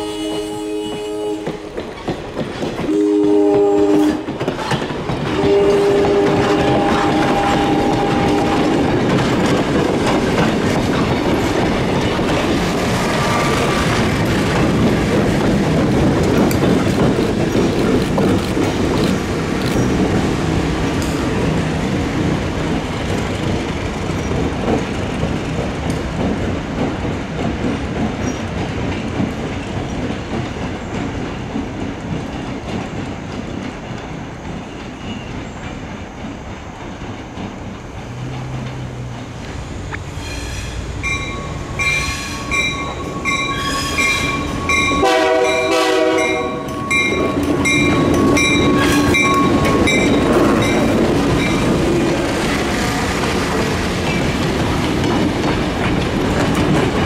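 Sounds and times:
locomotive horn blasts: 0.0s - 1.7s, 2.9s - 4.3s, 5.4s - 8.9s, 41.8s - 47.2s
wheels clicking over rail joints: 1.0s - 40.1s, 41.0s - 57.0s.

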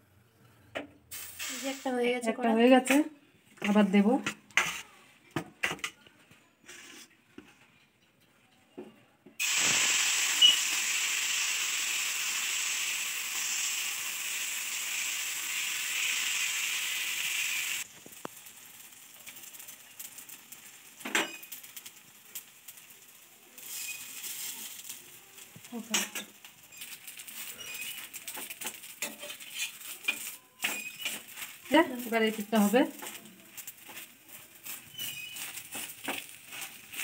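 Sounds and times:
batter sizzling on hot griddle: 1.1s - 2.2s, 9.4s - 37.0s.

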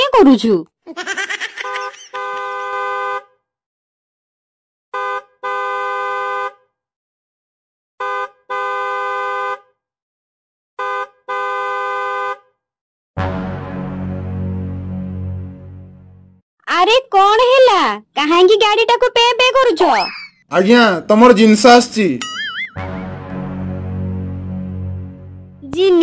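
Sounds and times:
truck horn honking: 1.6s - 3.4s, 4.9s - 6.7s, 8.0s - 9.8s, 10.8s - 12.6s, 13.2s - 14.7s, 22.8s - 25.6s.

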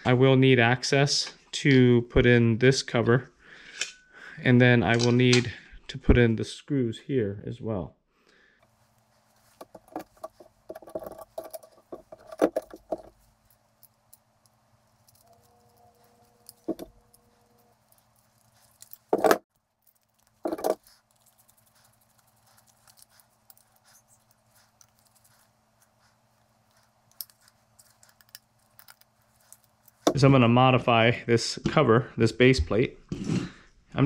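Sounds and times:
small parts clicking and rattling: 9.4s - 30.2s
parts clacking on workbench: 16.6s - 17.0s.

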